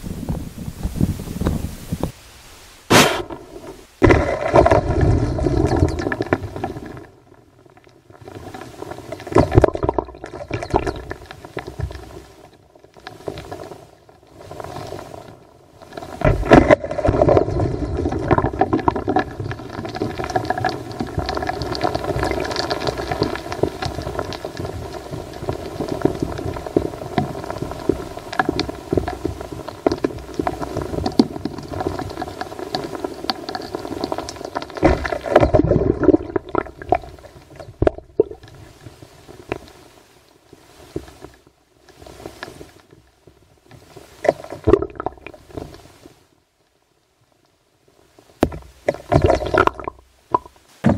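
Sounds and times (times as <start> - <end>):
loud thumps: 2.9 - 4.8
knocks and crackles: 2.9 - 7.0, 16.1 - 38.5, 48.4 - 50.9.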